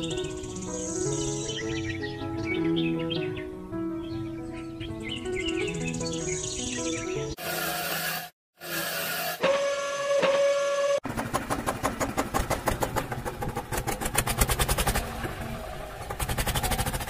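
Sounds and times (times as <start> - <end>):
tractor engine chugging: 9.4 - 17.0.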